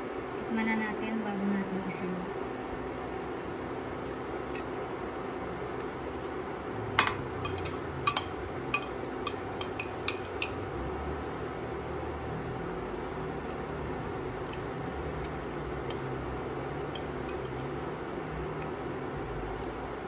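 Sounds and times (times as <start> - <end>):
low kitchen hum: 0.0 - 20.0
utensil clinking against dishes: 7.0 - 10.6, 15.2 - 16.3, 16.9 - 17.6.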